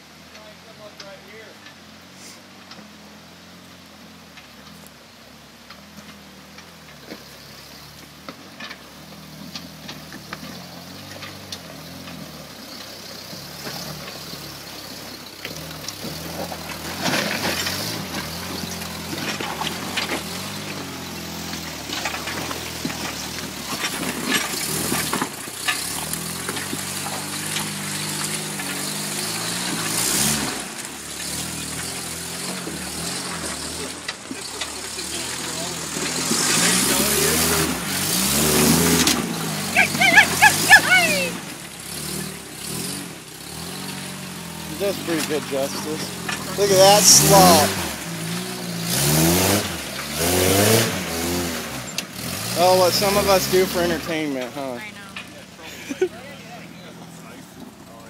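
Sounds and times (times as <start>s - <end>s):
truck engine revving: 5.6s - 58.0s
knocks and crunches over rocks: 5.7s - 39.7s.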